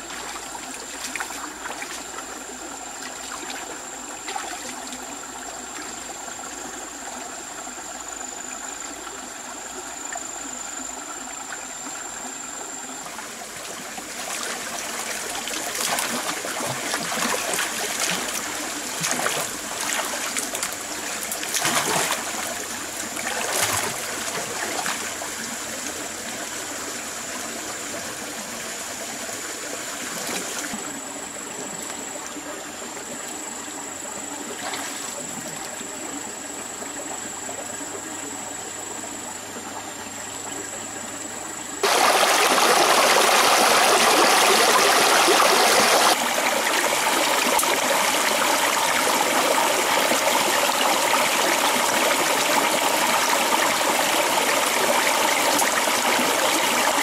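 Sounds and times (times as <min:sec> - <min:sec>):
stream water trickling: 0:00.0 - 0:57.0
knocks and splashes: 0:14.2 - 0:22.6, 0:23.2 - 0:25.1.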